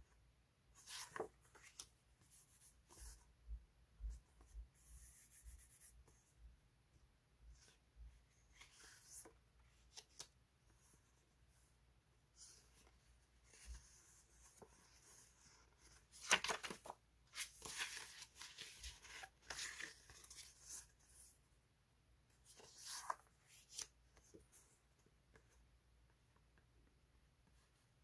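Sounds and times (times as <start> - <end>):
paper sticker sheets rustling: 13.5 - 21.1.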